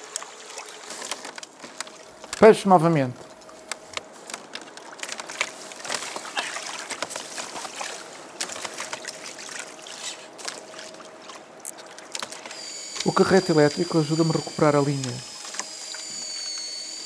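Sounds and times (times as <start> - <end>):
faint steady whine: 0.0 - 17.0
fishing gear clicks and knocks: 3.2 - 6.3
water lapping against hull: 3.2 - 12.5.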